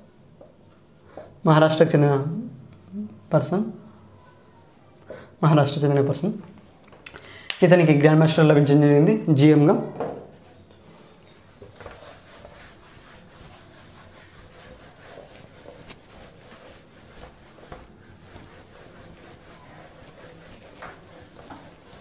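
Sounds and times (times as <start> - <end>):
eraser rubbing on whiteboard: 11.3 - 22.0.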